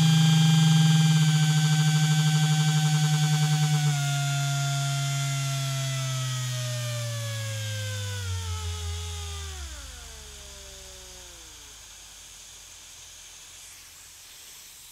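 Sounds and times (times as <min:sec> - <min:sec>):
power tool motor winding down: 0:00.0 - 0:14.3
faint hiss: 0:10.4 - 0:14.9.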